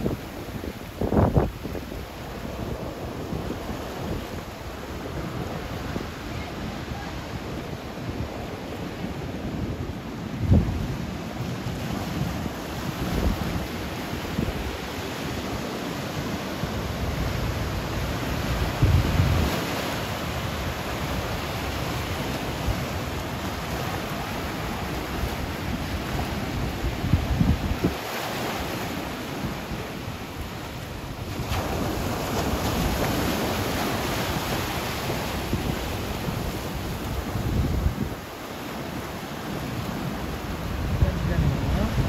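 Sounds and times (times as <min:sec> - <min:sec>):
wind rumbling on microphone: 0:00.0 - 0:42.0
surf breaking over rocks: 0:11.3 - 0:42.0.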